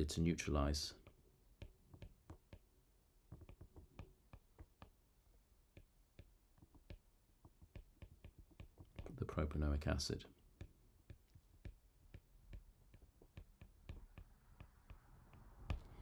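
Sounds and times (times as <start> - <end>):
stylus tapping on glass screen: 1.0 - 2.7, 3.3 - 5.0, 5.7 - 9.2, 10.5 - 16.0.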